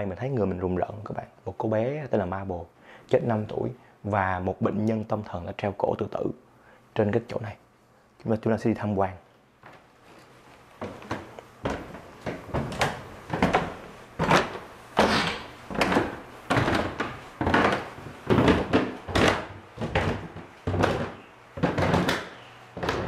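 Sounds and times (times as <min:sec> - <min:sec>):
footsteps on wooden stairs: 0:09.6 - 0:23.0.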